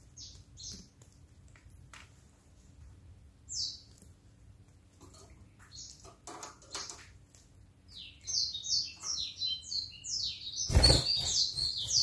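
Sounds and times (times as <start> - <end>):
canary chirping: 0.0 - 0.9, 3.5 - 4.0, 7.8 - 12.0.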